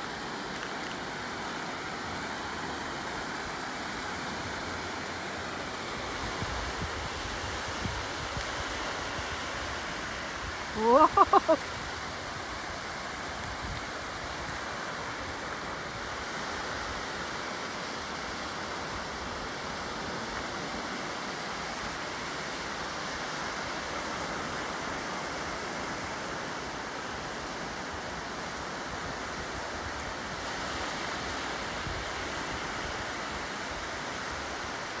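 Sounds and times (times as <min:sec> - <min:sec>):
ocean surf on beach: 0:00.0 - 0:35.0.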